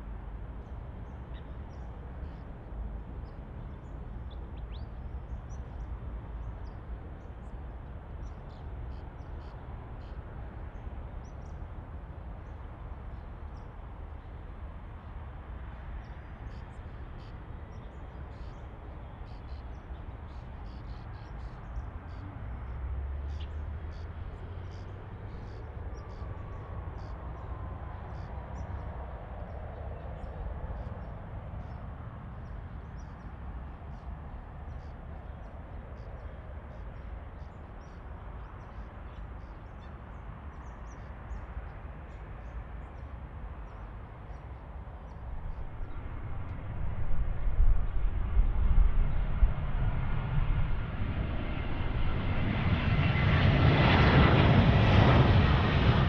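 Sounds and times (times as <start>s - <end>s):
jet engines rumbling: 23.7s - 36.7s, 44.8s - 56.0s.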